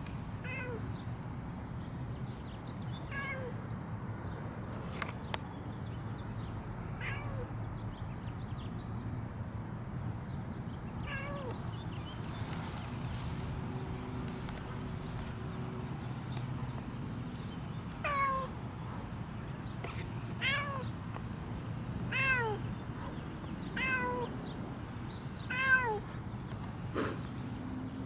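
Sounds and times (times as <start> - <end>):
cat meowing: 3.1 - 3.5, 7.0 - 7.5, 11.0 - 11.6, 17.9 - 18.5, 20.4 - 20.8, 22.1 - 22.6, 23.8 - 24.3, 25.5 - 26.0.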